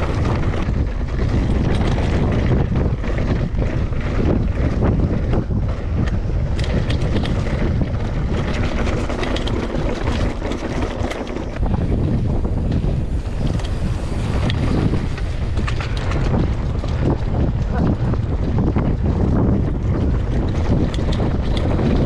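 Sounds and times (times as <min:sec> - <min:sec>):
clicks and rattles: 0:00.0 - 0:22.0
wind buffeting microphone: 0:00.0 - 0:22.0.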